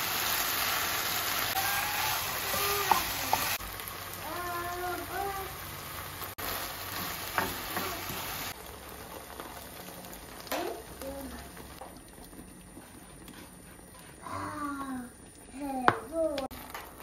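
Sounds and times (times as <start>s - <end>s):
food sizzling in a frying pan: 0.0s - 12.3s.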